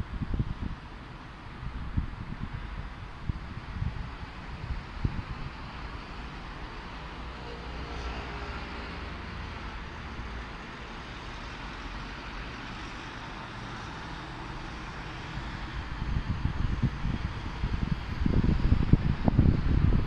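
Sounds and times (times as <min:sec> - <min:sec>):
road traffic hum: 0:00.0 - 0:20.0
passing vehicle engine: 0:05.1 - 0:20.0.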